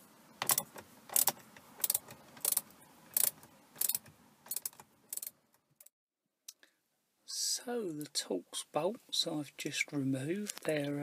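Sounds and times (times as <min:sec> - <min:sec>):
socket ratchet clicking: 0:00.4 - 0:05.3.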